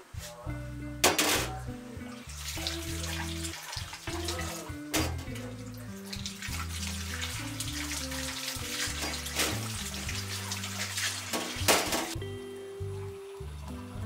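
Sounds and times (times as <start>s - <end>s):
music with low sustained notes: 0.0s - 14.0s
water running from tap: 2.1s - 12.2s.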